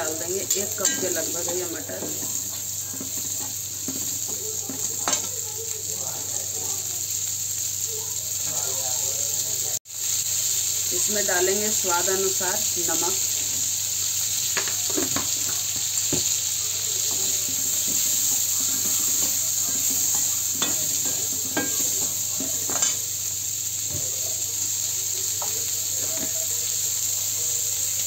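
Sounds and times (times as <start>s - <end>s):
peas sizzling in a pan: 0.0s - 28.0s
spoon scraping and clinking on pan: 0.5s - 5.3s, 17.0s - 23.0s.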